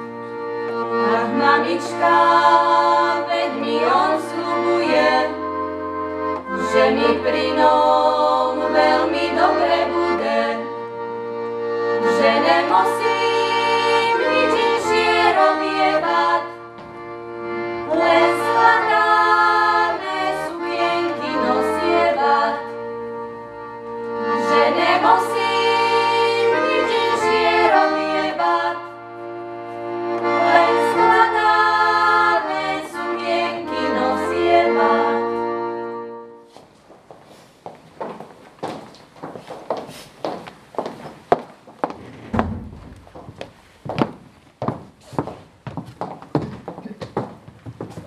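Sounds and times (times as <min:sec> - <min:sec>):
accordion: 0:00.0 - 0:41.0
women singing: 0:01.0 - 0:05.4, 0:06.5 - 0:10.8, 0:12.0 - 0:16.6, 0:17.8 - 0:22.8, 0:24.4 - 0:29.0, 0:30.3 - 0:35.6.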